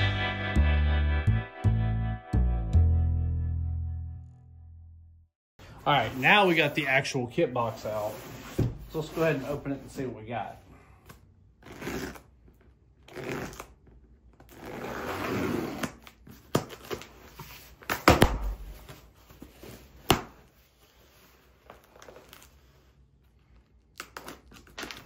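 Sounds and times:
packing tape being slit: 23.9s - 25.0s.

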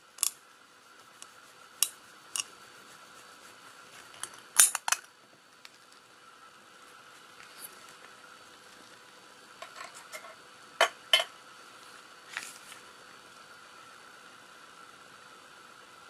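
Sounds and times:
tin can clinking against plate: 9.6s - 11.3s.

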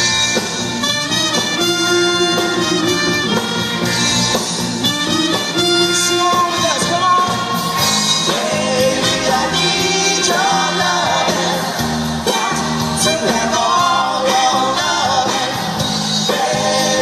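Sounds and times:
bass line: 0.0s - 17.0s
drums: 0.0s - 17.0s
person singing: 5.8s - 17.0s.

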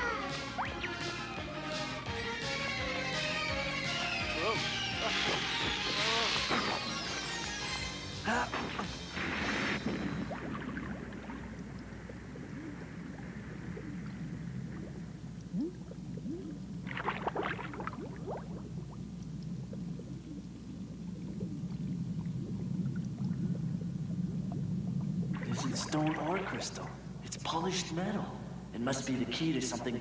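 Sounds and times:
bubbles gurgling: 0.0s - 1.4s, 4.7s - 27.2s, 29.2s - 30.0s
low underwater rumble: 8.8s - 27.2s.

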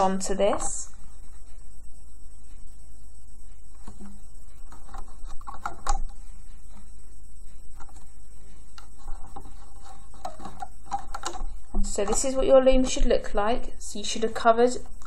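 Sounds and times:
steady low hum: 0.0s - 15.0s
rubber bands clicking on pins: 8.8s - 13.1s.

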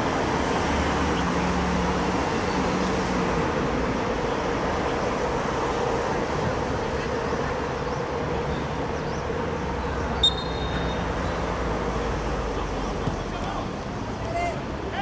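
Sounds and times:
football ground background noise: 0.0s - 15.0s
short high whistle blast: 10.2s - 11.0s.

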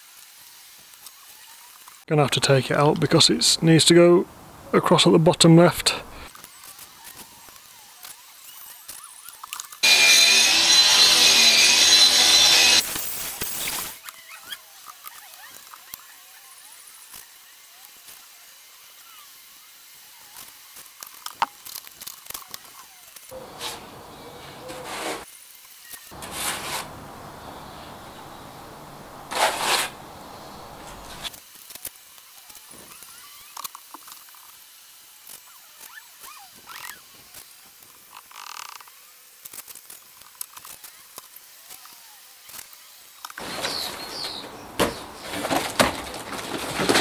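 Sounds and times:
packaging sheet rustling: 26.1s - 31.4s, 43.4s - 47.0s.

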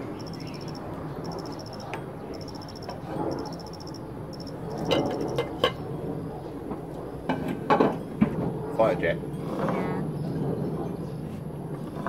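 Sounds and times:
insect chirping trills: 0.0s - 5.5s
airplane drone: 0.0s - 12.0s.

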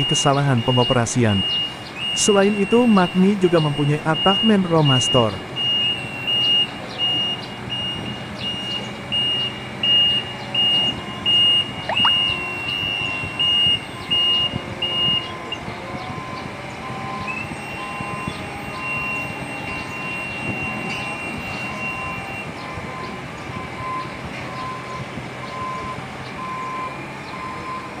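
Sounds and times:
faint low beeps: 0.0s - 15.6s
reversing alarm beeping: 0.0s - 28.0s.

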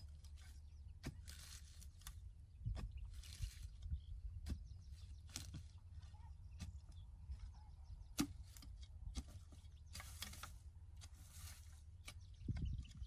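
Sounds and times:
digging tool striking soil: 1.0s - 3.0s, 4.4s - 5.7s, 8.1s - 12.3s.

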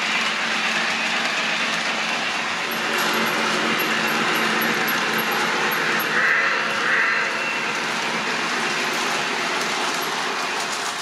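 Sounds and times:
model train wheels rumbling: 0.0s - 11.0s.

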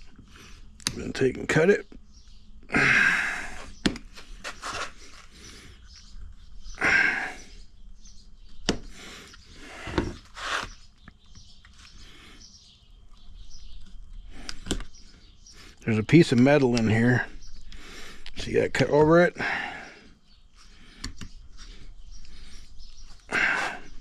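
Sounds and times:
faint bird chirps: 0.0s - 24.0s.

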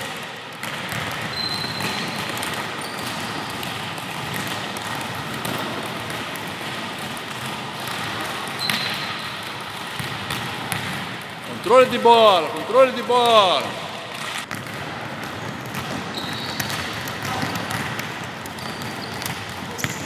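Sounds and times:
balls bouncing on wooden floor: 0.0s - 12.0s, 14.1s - 20.0s
shoe squeaks: 1.3s - 2.2s, 2.8s - 3.4s, 8.6s - 9.1s, 16.1s - 16.7s, 18.6s - 20.0s.

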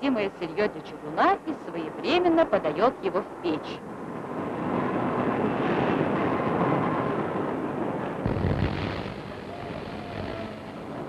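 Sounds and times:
deep machinery surge: 8.2s - 11.0s.

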